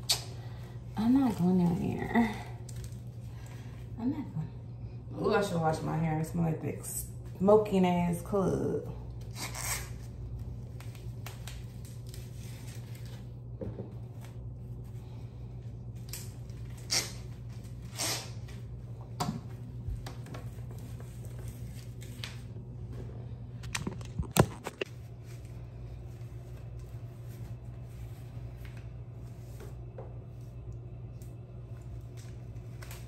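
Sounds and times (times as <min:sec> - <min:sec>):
low room hum: 0:00.0 - 0:33.0
clicks and rustles of objects: 0:23.6 - 0:25.5.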